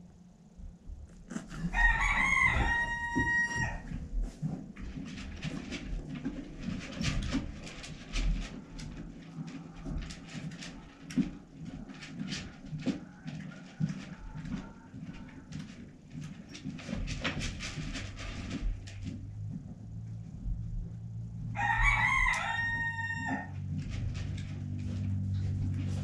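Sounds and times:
scratching and tapping: 0.9s - 26.0s
rooster crowing: 1.3s - 4.0s, 21.5s - 23.7s.

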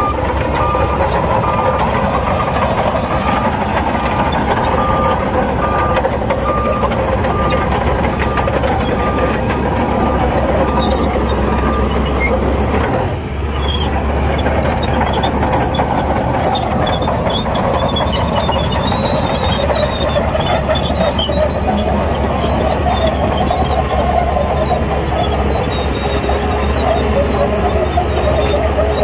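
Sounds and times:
reversing alarm beeps: 0.0s - 12.2s
bulldozer diesel engine: 0.0s - 29.0s
high-pitched squeaks: 0.0s - 29.0s.

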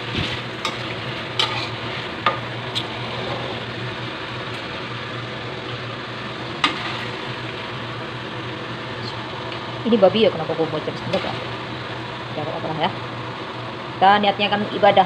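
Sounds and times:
meat sizzling in oil in a wok: 0.0s - 9.8s.

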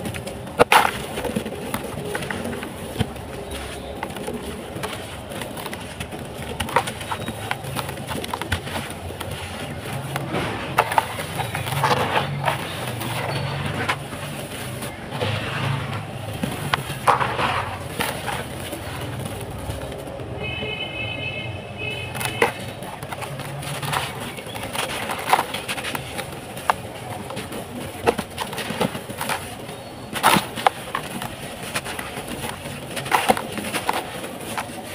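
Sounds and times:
dry mud crunching by hand: 0.0s - 34.9s.

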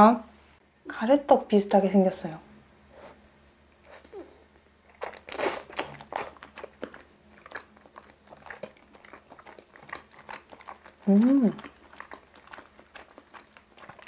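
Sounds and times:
wet chewing clicks: 3.2s - 14.0s
slurping noodles: 5.0s - 14.0s.

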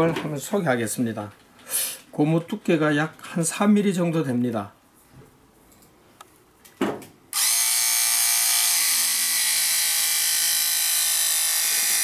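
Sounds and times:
electric scissors whining: 7.4s - 12.0s.

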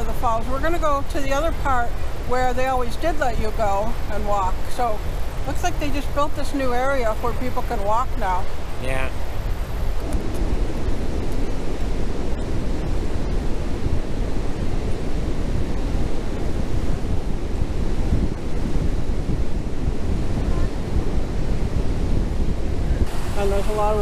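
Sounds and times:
wind buffeting the microphone: 0.0s - 24.0s
waterfall rushing: 23.0s - 24.0s.

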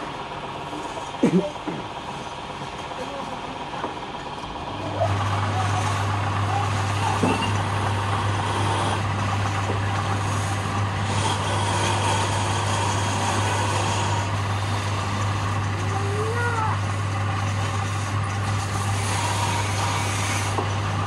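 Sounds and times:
wood lathe motor hum: 0.0s - 21.0s
sandpaper hissing on turning wood: 8.3s - 9.1s, 10.0s - 16.2s, 17.7s - 20.6s.

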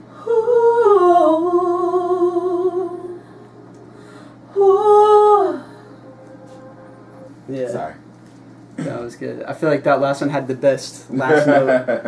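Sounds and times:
choir singing held ooh: 0.1s - 7.6s.

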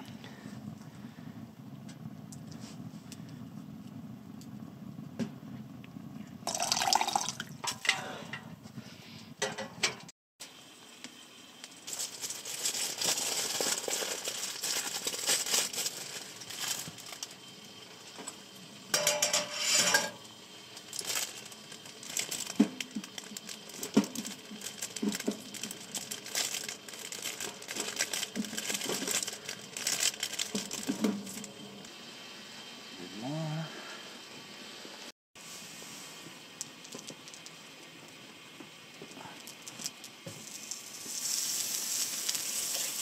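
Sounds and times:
plastic packaging crinkling: 11.8s - 17.3s, 20.8s - 31.5s
metal cookware clinking: 19.0s - 20.2s.

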